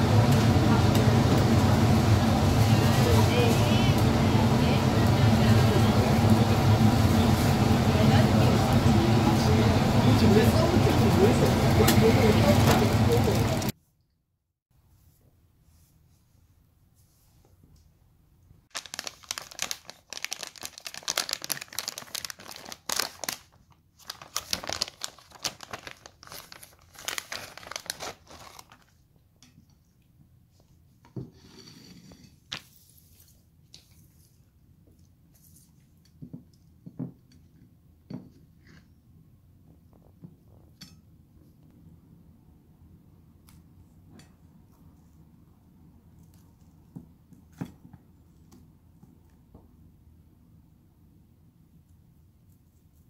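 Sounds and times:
plastic pouch crinkling and tearing: 18.7 - 29.0.

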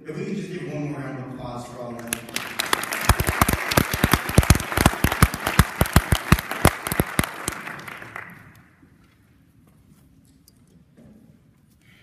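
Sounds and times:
audience applauding: 2.0 - 8.7
loud close hand clapping: 2.0 - 8.7.

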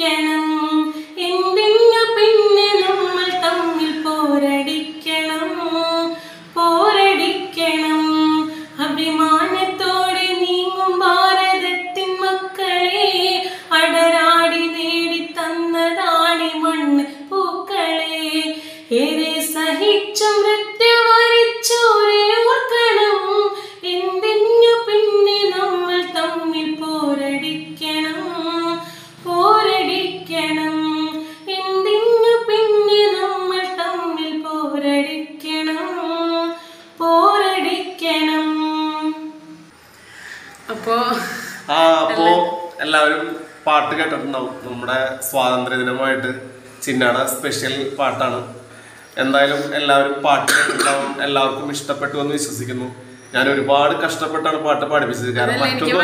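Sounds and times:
woman singing unaccompanied: 0.0 - 39.6, 42.0 - 42.7, 55.4 - 56.0.

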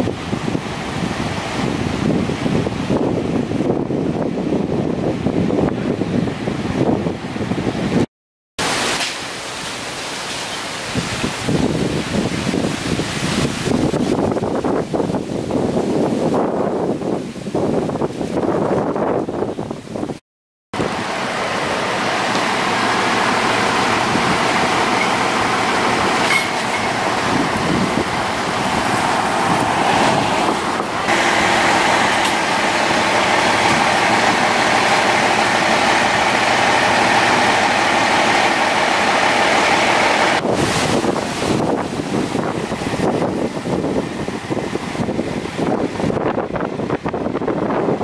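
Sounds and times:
vehicle engine droning: 20.8 - 48.0.

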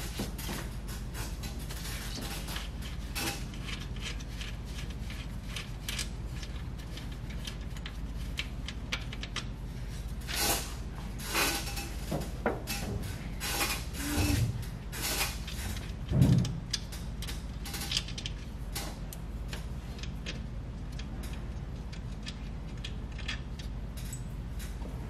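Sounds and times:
metal knocks and clunks: 16.0 - 16.8.

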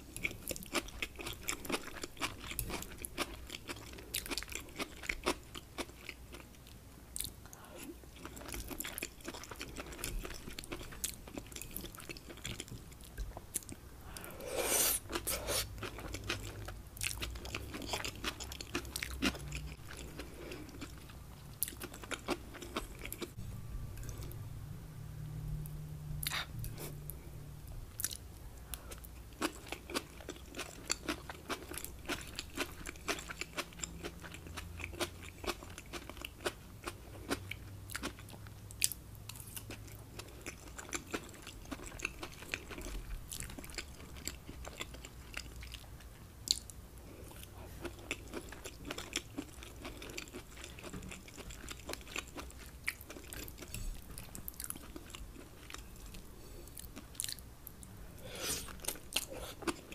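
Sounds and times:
chewing crunches and smacks: 0.1 - 7.4, 8.2 - 13.8, 15.1 - 23.4, 28.9 - 57.9.

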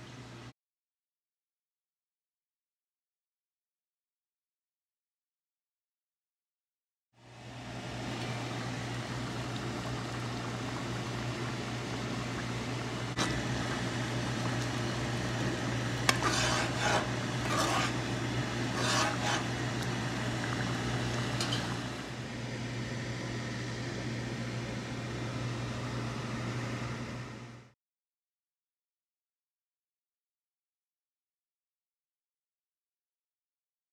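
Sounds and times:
steady low hum: 7.2 - 27.7
stew simmering and bubbling: 7.5 - 22.4
spoon scraping and stirring pot: 15.9 - 22.0.

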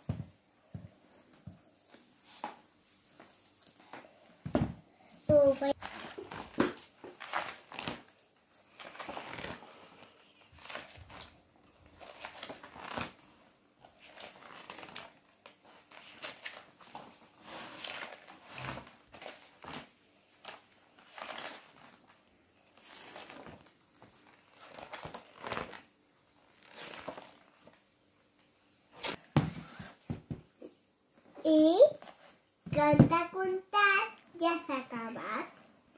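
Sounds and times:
book pages turning: 5.7 - 27.8.

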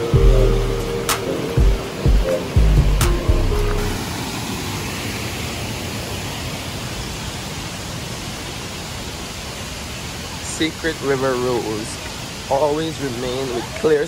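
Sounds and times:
music: 0.0 - 4.0
river rushing over rapids: 0.0 - 14.0.

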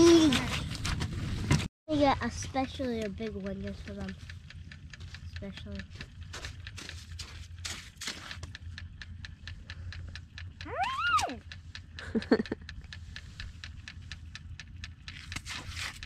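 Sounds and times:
light ticks: 2.2 - 16.0
dog whimpering: 10.6 - 11.4
dog whining: 10.6 - 11.4.

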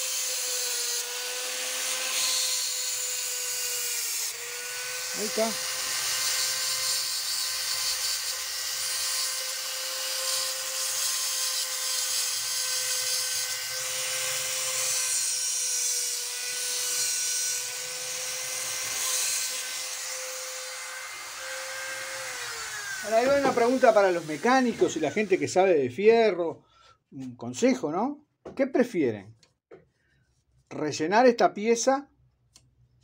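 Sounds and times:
bit grinding metal: 0.0 - 25.4
rotary tool whining: 0.0 - 25.4.

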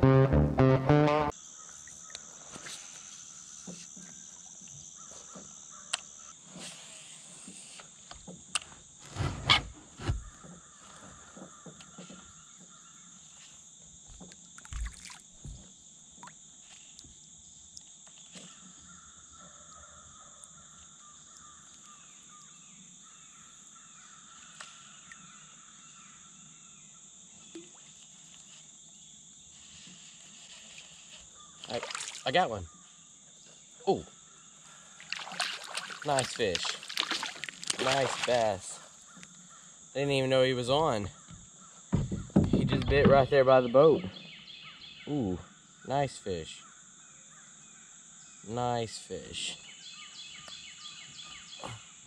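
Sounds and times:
insect drone: 1.3 - 52.0
bird calls: 49.5 - 52.0.

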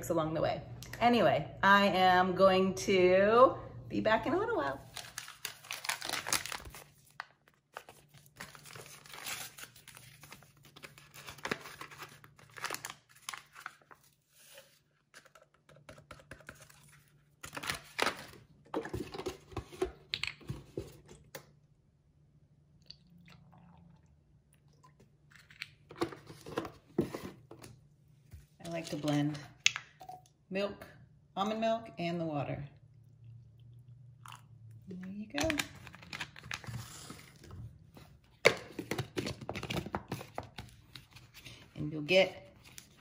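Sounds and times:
packet rustling and crinkling: 4.8 - 15.5, 35.4 - 37.5
packet tearing: 4.9 - 14.0.

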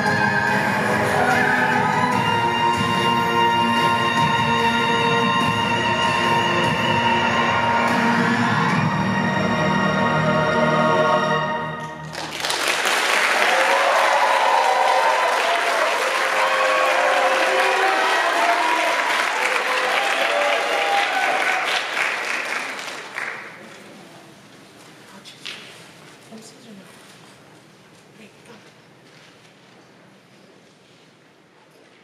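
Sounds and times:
audience applause and cheering: 0.0 - 9.6, 12.0 - 23.7.

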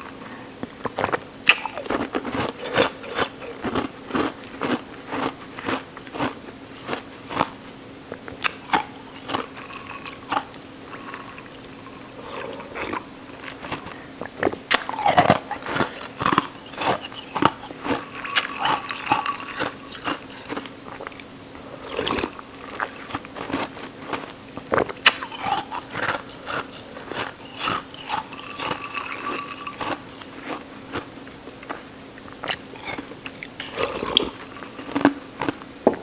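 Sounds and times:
ice cubes crunched by teeth: 1.5 - 7.6, 14.5 - 21.1, 21.9 - 31.1.

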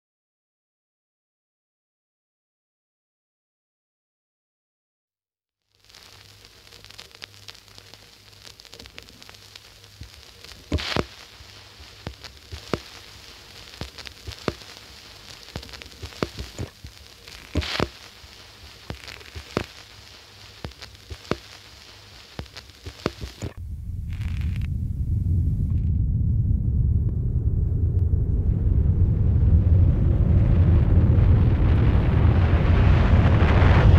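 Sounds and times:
sharp cracks and ticks: 5.8 - 24.7
low steady hum: 5.8 - 33.9
loud low rumble: 23.5 - 33.9.

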